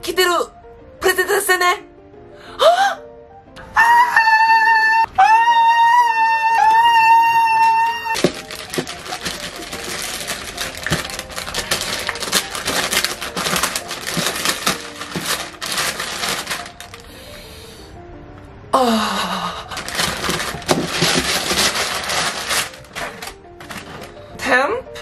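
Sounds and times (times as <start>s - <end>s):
light background music: 0.0s - 25.0s
paper crinkling and rustling: 7.6s - 17.2s, 19.7s - 24.3s.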